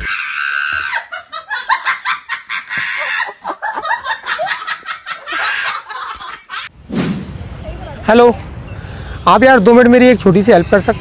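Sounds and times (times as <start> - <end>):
young women laughing: 0.6 - 6.7.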